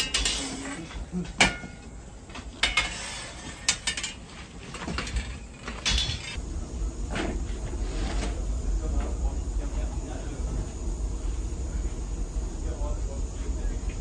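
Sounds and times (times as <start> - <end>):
steady low hum: 0.0 - 14.0
objects knocking and clinking: 1.3 - 6.4.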